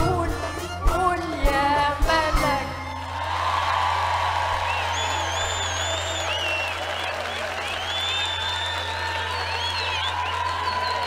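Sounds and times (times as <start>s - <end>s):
woman singing: 0.0s - 3.0s.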